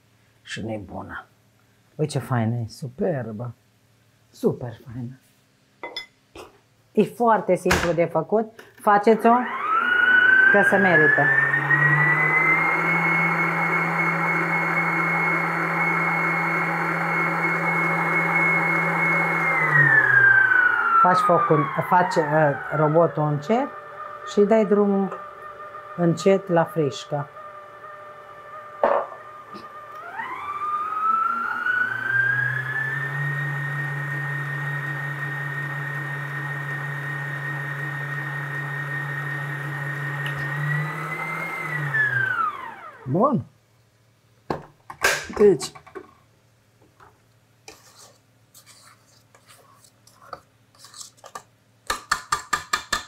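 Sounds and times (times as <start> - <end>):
electric mixer whining: 8.9 - 43.1.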